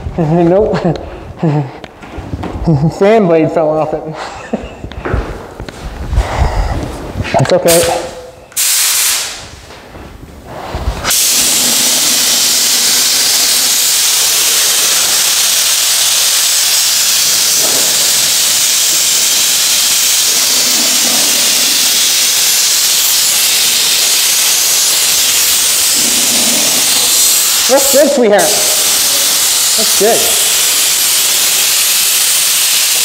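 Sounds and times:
spray gun hissing: 0:07.7 - 0:09.6, 0:10.5 - 0:33.0.

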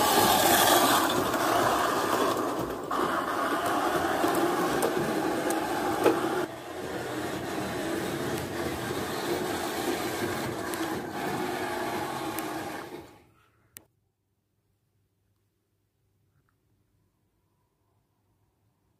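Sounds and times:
wheels clicking at rail joints: 0:00.0 - 0:13.2
model trains whirring and rumbling: 0:00.0 - 0:13.3.

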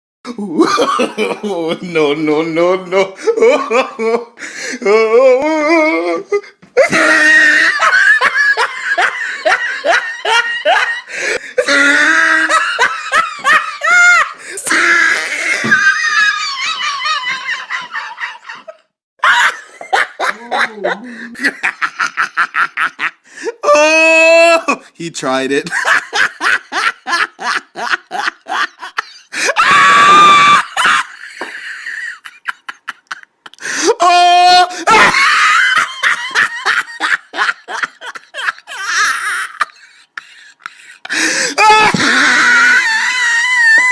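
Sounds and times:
person laughing hard: 0:00.3 - 0:01.9, 0:03.0 - 0:24.9, 0:25.7 - 0:43.9
high-pitched scream: 0:29.6 - 0:30.8.

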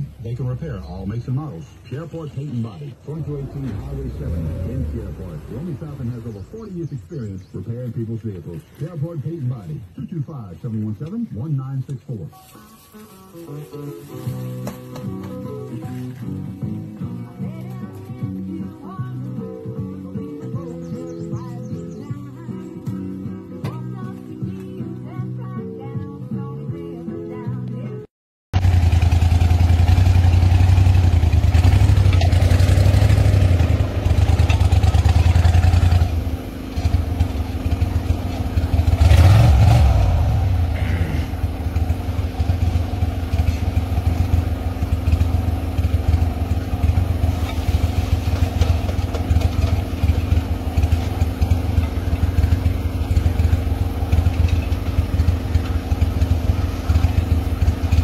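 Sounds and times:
boat engine droning: 0:00.0 - 0:09.8.

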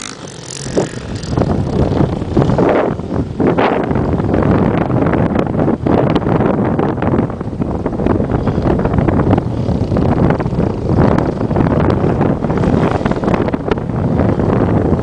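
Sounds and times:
distant atv engine running: 0:00.0 - 0:03.9
wind buffeting microphone: 0:00.0 - 0:15.0.

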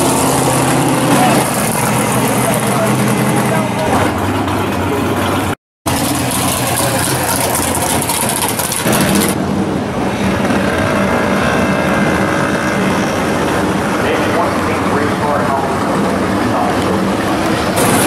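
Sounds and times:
drag car engines rolling past: 0:00.0 - 0:18.0.

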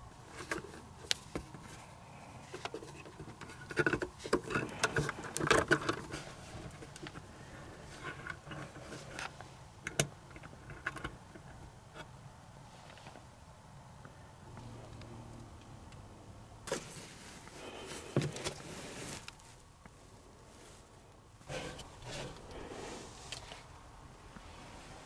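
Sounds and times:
wires rattling against metal box: 0:02.4 - 0:11.6.

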